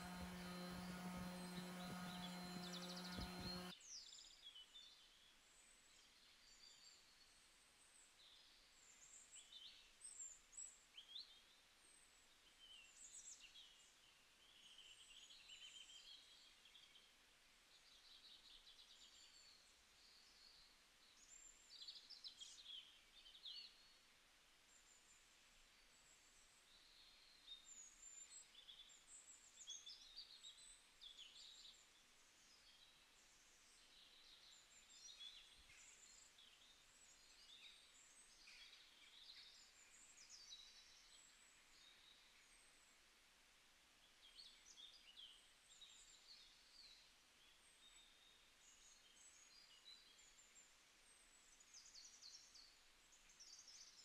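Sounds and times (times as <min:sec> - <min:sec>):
steady buzzing hum: 0:00.0 - 0:03.7
songbirds chirping: 0:00.0 - 0:05.0.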